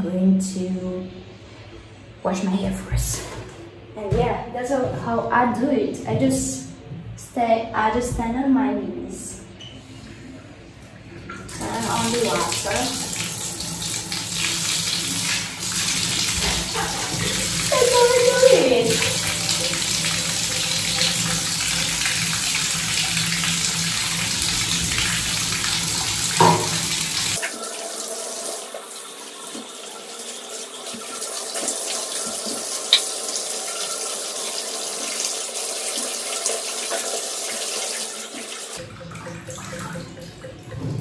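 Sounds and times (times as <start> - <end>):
water running from bathtub spout: 11.3 - 41.0.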